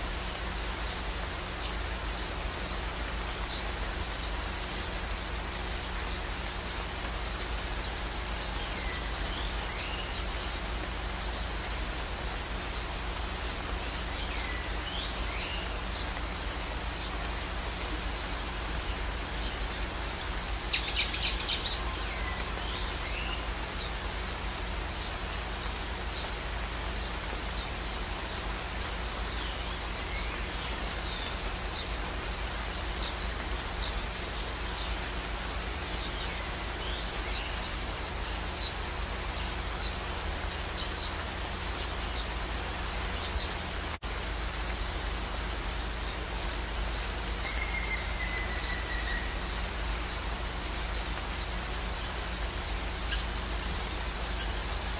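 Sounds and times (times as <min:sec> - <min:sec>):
birds chirping: 0:00.0 - 0:54.9
waterfall rushing into pool: 0:00.0 - 0:54.9
high bird calls: 0:44.8 - 0:54.9.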